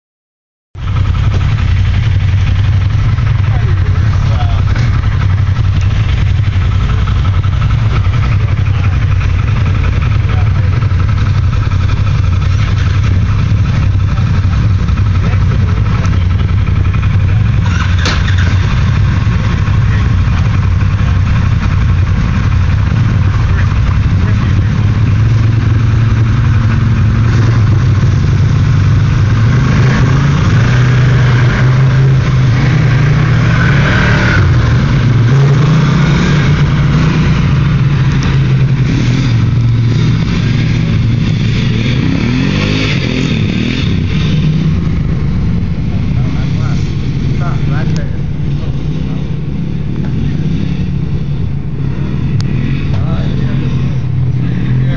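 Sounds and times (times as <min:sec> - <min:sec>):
engines idling: 0:00.8 - 0:54.9
vehicles pulling away revving: 0:00.8 - 0:54.9.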